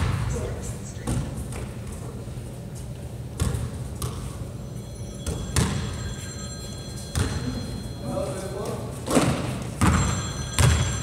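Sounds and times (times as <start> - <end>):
basketball bouncing on hardwood floor: 3.4 - 4.2, 5.2 - 5.8, 9.3 - 11.0.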